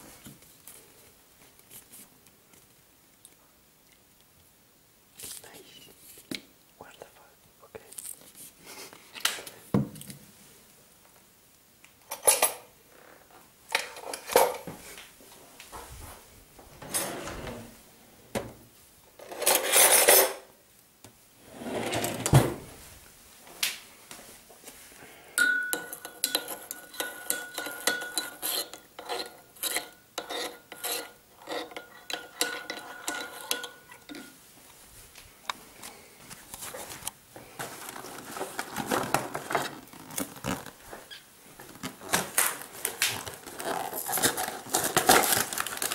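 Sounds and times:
metal spoon clinking in ceramic bowl: 25.4 - 31.0, 31.7 - 34.3
dishes and jars clinking: 25.4 - 34.4.

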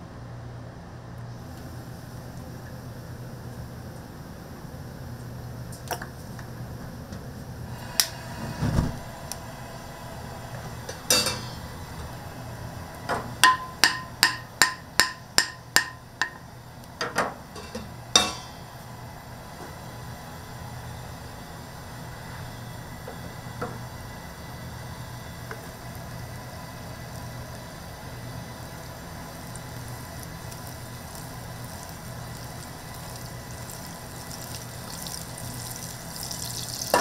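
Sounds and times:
steady low hum: 0.0 - 36.2
metal cookware knocking: 10.9 - 11.6, 13.4 - 16.4, 17.1 - 18.6.

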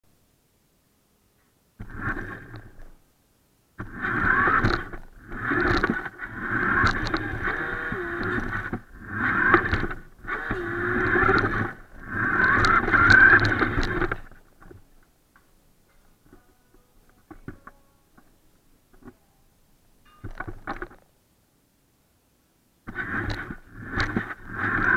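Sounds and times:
toy car motor whirring: 1.8 - 2.8, 3.8 - 14.4, 22.9 - 24.9.

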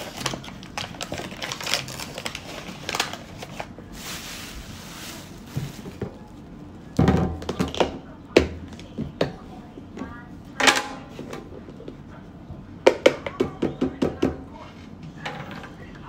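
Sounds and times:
plastic bags crinkling: 0.0 - 6.3.

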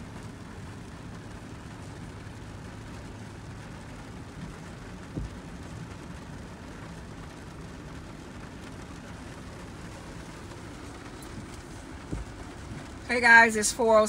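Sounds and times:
heavy rain on car roof: 0.0 - 14.0
low car hum: 0.0 - 14.0
thump: 12.1 - 12.4.

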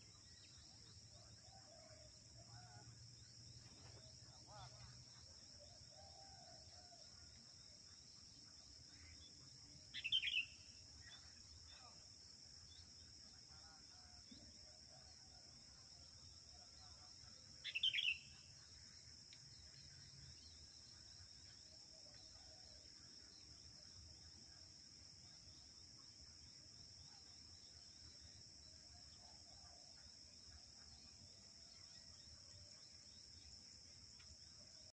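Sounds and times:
insects droning: 0.0 - 34.9
bulbul calls: 9.9 - 10.6, 17.6 - 18.4.

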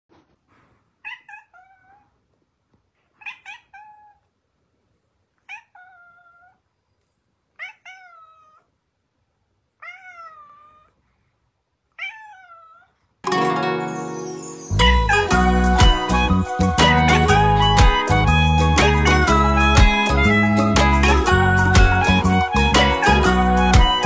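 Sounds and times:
cat meowing: 1.0 - 2.1, 3.2 - 4.3, 5.4 - 6.6, 7.6 - 8.7, 9.8 - 11.0, 11.9 - 13.0, 19.8 - 20.7.

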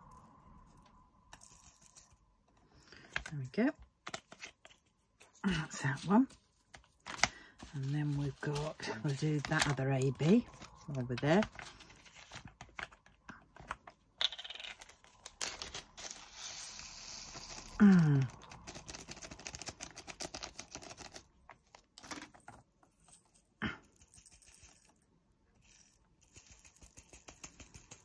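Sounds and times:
plastic bag crinkling: 5.4 - 13.0
tiny beads pouring into pot: 15.3 - 17.8.

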